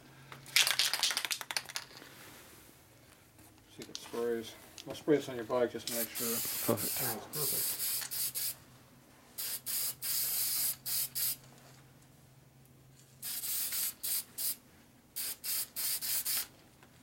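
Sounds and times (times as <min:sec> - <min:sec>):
aerosol can spray bursts: 0:05.9 - 0:08.6, 0:09.4 - 0:11.4, 0:13.2 - 0:14.6, 0:15.2 - 0:16.5.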